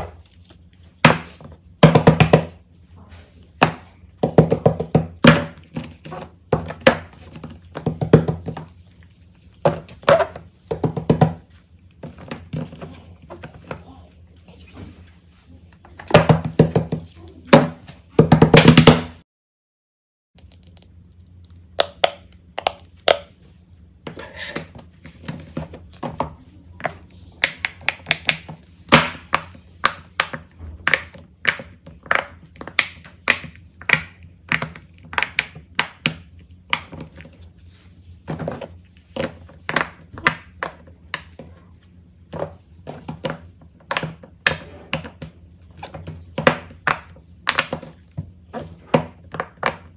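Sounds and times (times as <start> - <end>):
fidget toys tapping and popping: 21.8 - 23.3, 25.2 - 37.3, 42.4 - 49.9.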